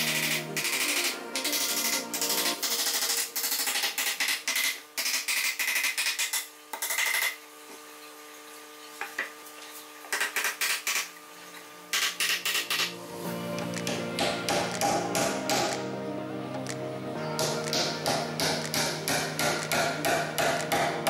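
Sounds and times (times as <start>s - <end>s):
small hammer tapping on wood: 13.8s - 15.8s, 17.4s - 21.0s.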